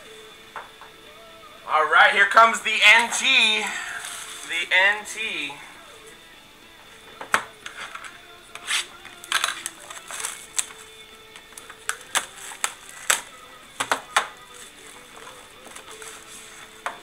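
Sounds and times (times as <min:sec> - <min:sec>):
plastic shrink wrap tearing: 0:08.6 - 0:16.9.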